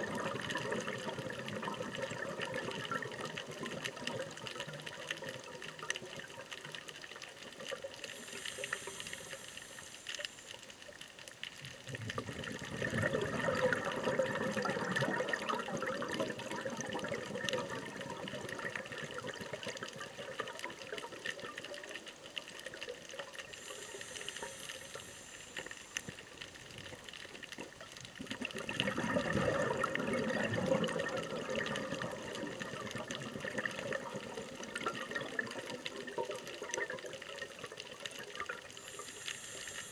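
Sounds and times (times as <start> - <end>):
exhaled bubbles gurgling: 0.0 - 39.9
regulator inhalation hiss: 8.0 - 10.8, 23.5 - 26.4, 38.7 - 39.9.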